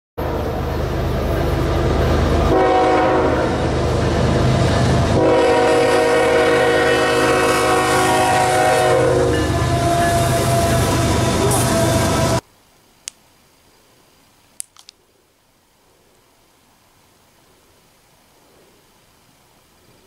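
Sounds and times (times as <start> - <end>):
locomotive engine rumble: 0.2 - 12.4
locomotive air horn: 2.5 - 3.7, 5.1 - 12.4.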